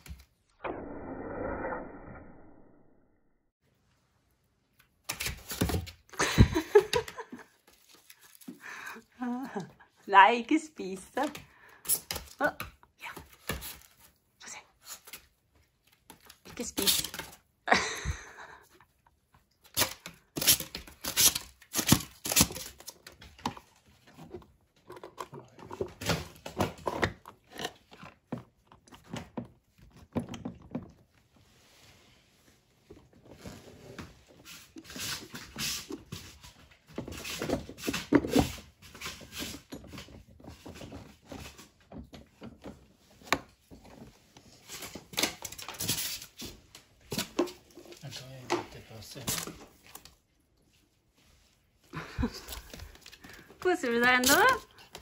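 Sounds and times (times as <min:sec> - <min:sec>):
cardboard and foam tearing: 0:19.7 - 0:23.2.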